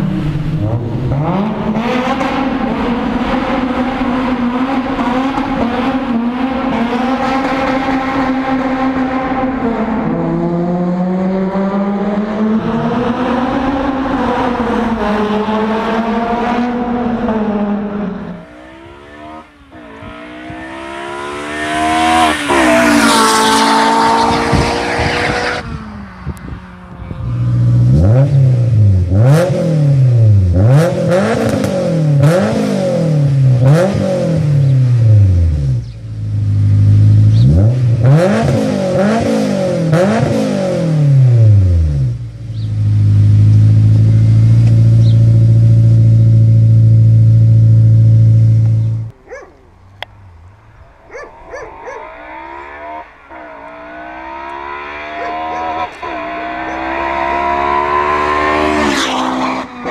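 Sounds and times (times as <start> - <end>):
car passing at high revs: 0.0 - 59.9
engine revving in blips: 0.0 - 59.9
car engine running: 41.1 - 58.5.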